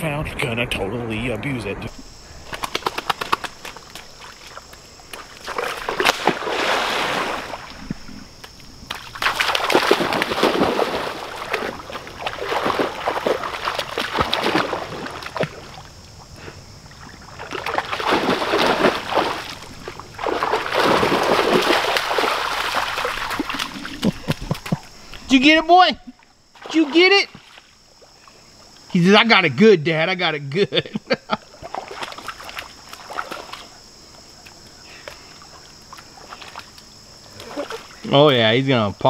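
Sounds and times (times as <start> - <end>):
puppy splashing through water: 8.9 - 15.8, 17.0 - 24.8, 31.6 - 33.8.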